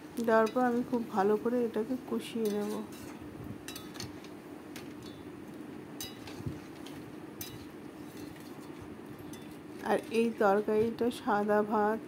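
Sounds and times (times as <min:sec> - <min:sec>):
faint steady hum: 0:00.0 - 0:12.0
metal spatula scraping a pan: 0:02.4 - 0:03.9.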